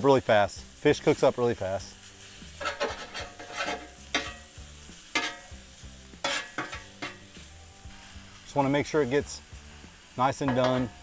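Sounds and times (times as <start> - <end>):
fish sizzling on griddle: 0.0 - 11.0
metal spatula scraping steel: 2.1 - 9.2, 10.2 - 11.0.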